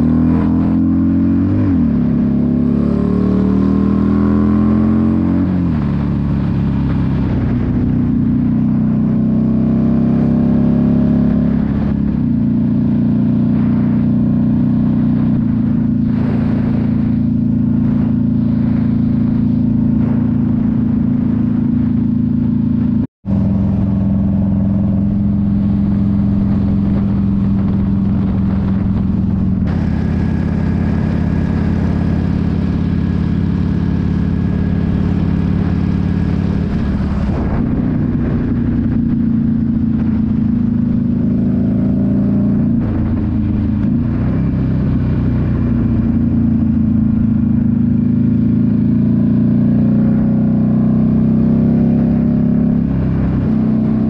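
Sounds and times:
motorcycle engine droning: 0.0 - 54.0.

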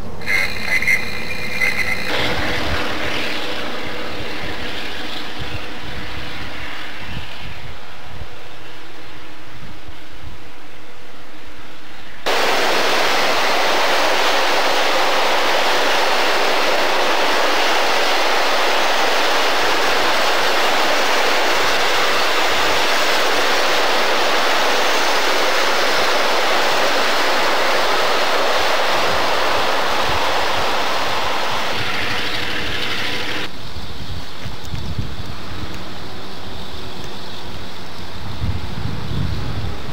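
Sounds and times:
train wheels rushing on rails: 0.0 - 39.9.

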